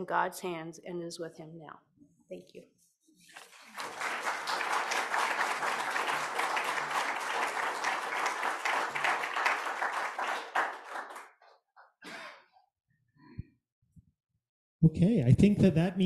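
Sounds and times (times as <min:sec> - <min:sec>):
audience applauding: 0:03.4 - 0:11.4.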